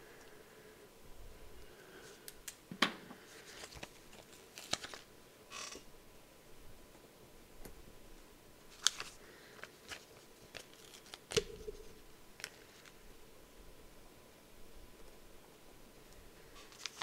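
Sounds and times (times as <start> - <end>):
paper sticker sheet crinkling: 3.4 - 5.1, 8.7 - 13.0, 16.6 - 17.0.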